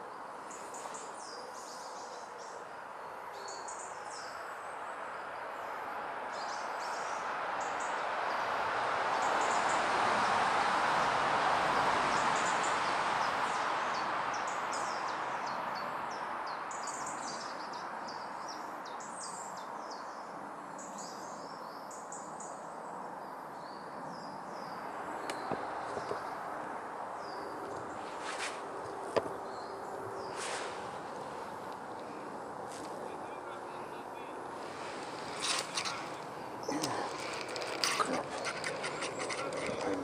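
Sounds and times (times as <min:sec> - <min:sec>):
small birds chirping: 0:28.9 - 0:40.0
steady rushing hiss: 0:30.2 - 0:40.0.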